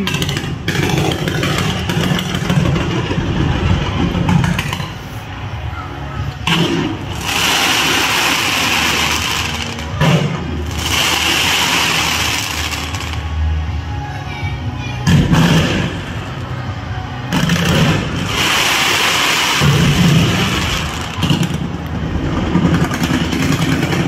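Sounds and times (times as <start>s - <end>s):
fireworks crackling: 0.0s - 5.1s, 6.4s - 13.5s, 17.3s - 24.0s
fireworks launches and bursts: 0.0s - 5.1s, 6.4s - 13.5s, 15.2s - 16.2s, 17.3s - 24.0s.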